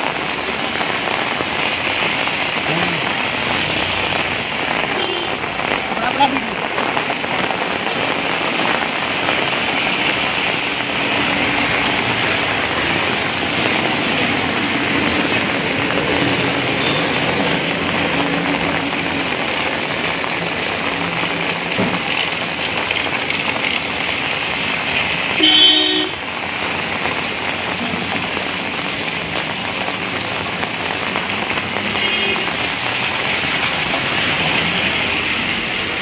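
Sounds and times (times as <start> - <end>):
heavy rain hissing: 0.0 - 36.0
tyres on wet road: 0.0 - 36.0
car engines passing: 1.4 - 6.7, 8.8 - 21.7, 27.1 - 36.0
vehicle horn toot: 5.0 - 5.3, 25.4 - 26.2, 32.0 - 32.5.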